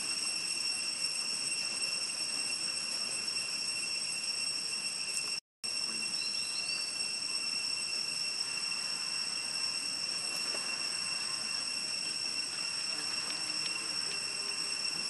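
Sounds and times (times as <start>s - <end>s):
high-pitched insect drone: 0.0s - 15.0s
faint ticks: 12.4s - 13.9s.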